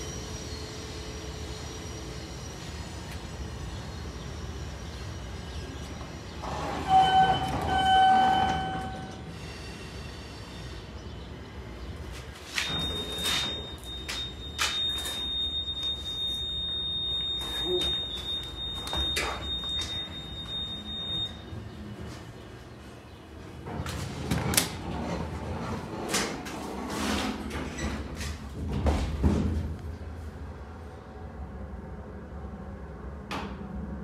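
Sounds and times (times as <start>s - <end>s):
elevator humming: 0.0s - 26.0s
pitched elevator tone: 6.4s - 9.4s, 12.6s - 21.9s
high-pitched beep: 12.7s - 21.5s.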